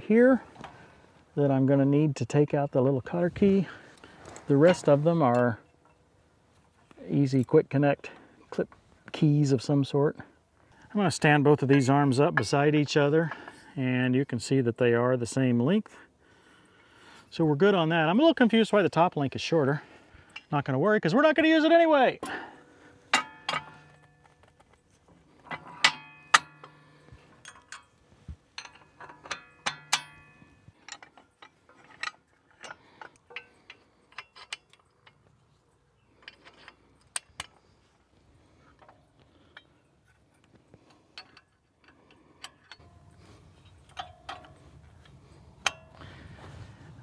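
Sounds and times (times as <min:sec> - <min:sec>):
metal clicks and clinks: 0:23.1 - 0:24.8, 0:25.4 - 0:28.0, 0:28.6 - 0:35.5, 0:38.7 - 0:46.1.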